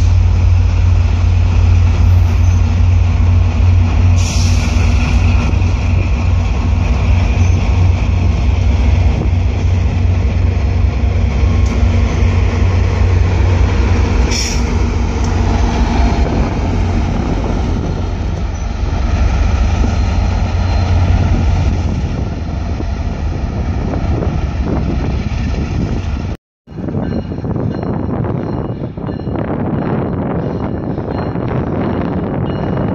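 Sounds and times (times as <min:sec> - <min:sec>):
train wheels rumbling on rail: 0:00.0 - 0:32.9
wind buffeting microphone: 0:00.0 - 0:32.9.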